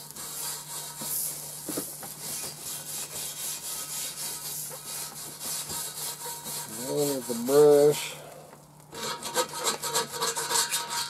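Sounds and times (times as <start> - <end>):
grill brush scrubbing grate: 0.0 - 8.3, 8.9 - 11.0.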